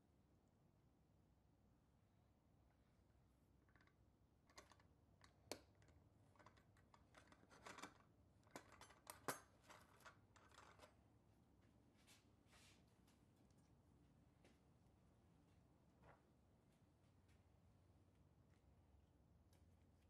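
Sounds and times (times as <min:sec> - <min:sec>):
light scraping of small parts: 0:03.6 - 0:11.0.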